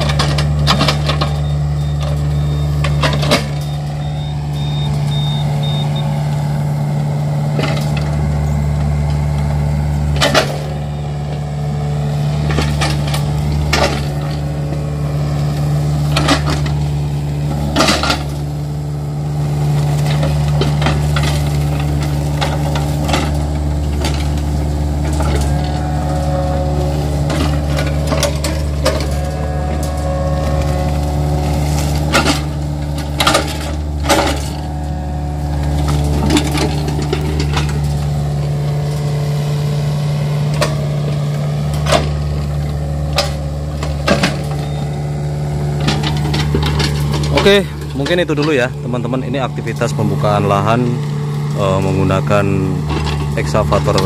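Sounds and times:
excavator diesel engine running: 0.0s - 54.0s
palm fronds cracking and snapping: 19.4s - 44.6s, 45.6s - 50.2s.

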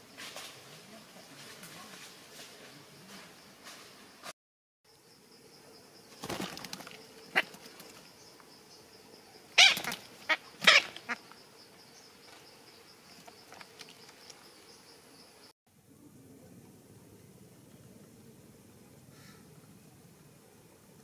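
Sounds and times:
parakeet flapping and rustling: 6.1s - 8.1s, 9.6s - 11.2s.

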